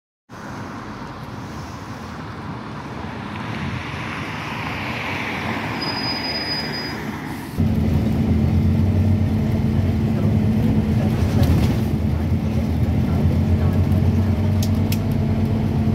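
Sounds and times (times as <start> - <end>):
bus engine drone on board: 0.3 - 15.9
bus pulling in: 0.3 - 15.9
high brake squeal: 5.6 - 7.6.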